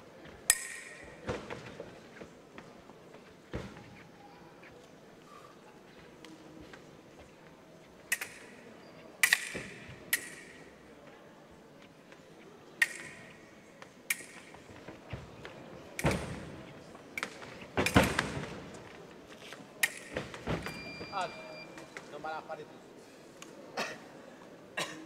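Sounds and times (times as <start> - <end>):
fencing blades clicking: 8.1 - 8.6, 9.2 - 10.6, 12.8 - 13.2, 14.1 - 14.5, 19.8 - 20.1.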